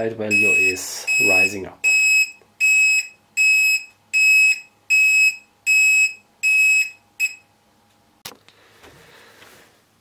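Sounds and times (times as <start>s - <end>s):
high electronic alarm beeping: 0.3s - 7.4s.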